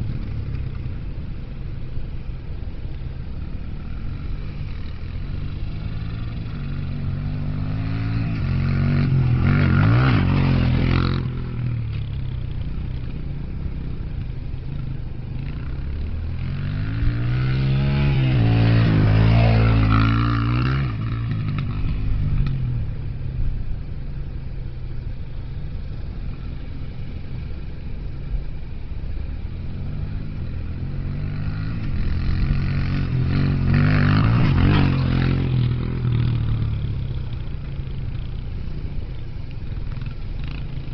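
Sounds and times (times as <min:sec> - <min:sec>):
dirt bike engine revving: 0:04.0 - 0:12.0, 0:15.4 - 0:22.5, 0:29.8 - 0:37.0.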